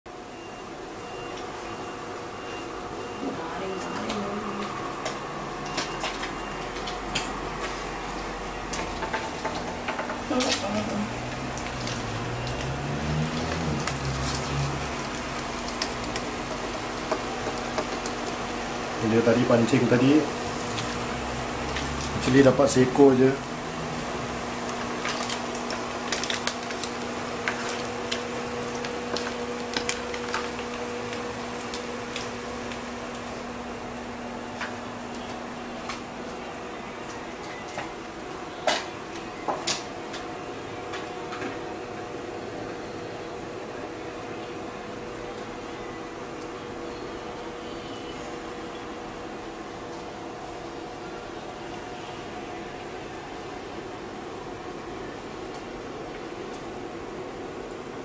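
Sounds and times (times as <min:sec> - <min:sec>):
sharp oil crackles: 0:05.6 - 0:38.9
fish sizzling in hot oil: 0:06.4 - 0:34.4.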